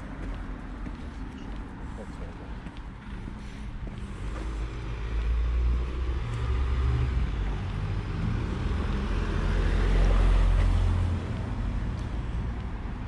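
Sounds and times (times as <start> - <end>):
low traffic rumble: 0.0 - 13.0
vehicle passing close by: 4.1 - 11.8.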